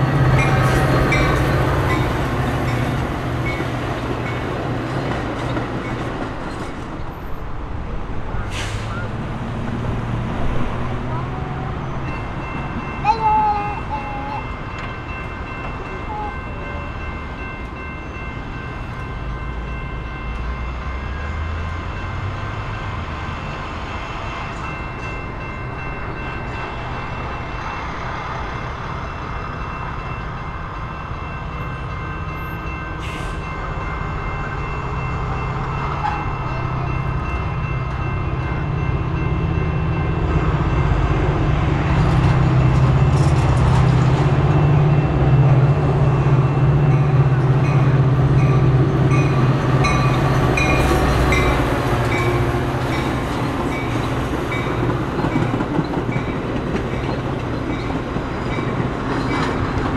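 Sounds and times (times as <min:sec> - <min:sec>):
crossing warning bells ringing: 0:00.0 - 0:59.9
diesel locomotive engine rumble: 0:00.0 - 0:59.9.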